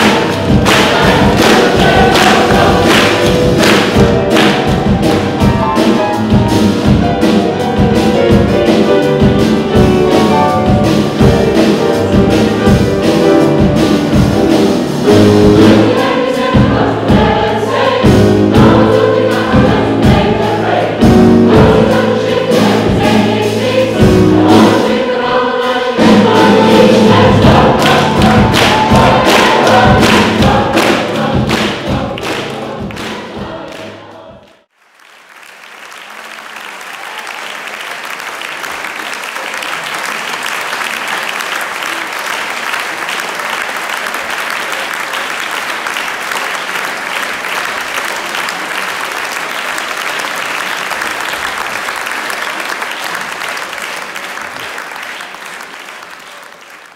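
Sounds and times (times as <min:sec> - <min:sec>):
audience applause: 0:00.0 - 0:04.8, 0:27.8 - 0:33.3, 0:34.7 - 0:56.9
choir singing: 0:00.0 - 0:05.4, 0:15.1 - 0:34.7.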